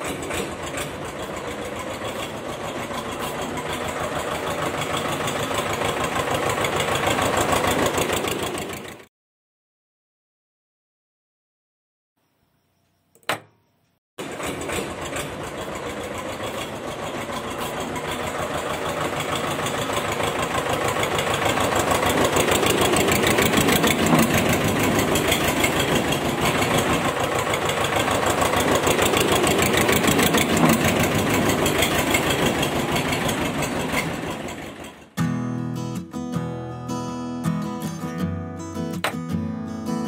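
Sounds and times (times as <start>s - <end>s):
tractor engine chugging: 0.0s - 9.1s, 14.2s - 35.4s.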